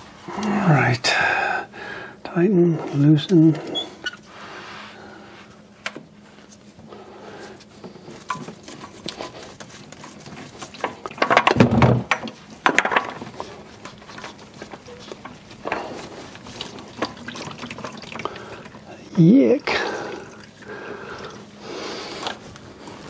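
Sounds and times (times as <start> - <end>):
scraping and rustling: 7.4 - 18.3.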